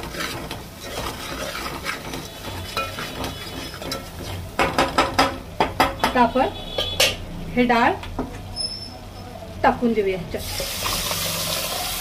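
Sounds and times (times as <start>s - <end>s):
spoon stirring and scraping a pot: 0.0s - 7.2s
soft sizzle of frying: 0.0s - 12.0s
spoon knocking against pot: 2.8s - 7.2s.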